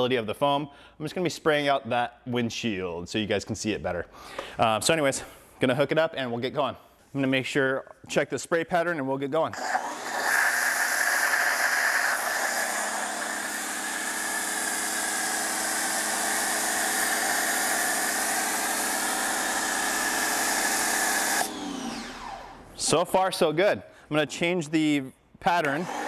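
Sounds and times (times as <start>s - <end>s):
pressure washer pump humming: 9.5s - 22.9s
foam spray hissing: 10.2s - 14.8s.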